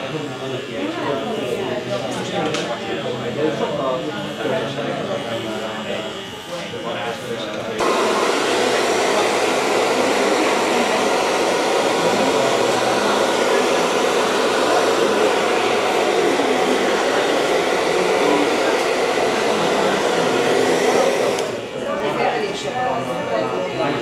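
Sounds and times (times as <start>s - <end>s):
hair dryer blowing: 7.7s - 22.5s.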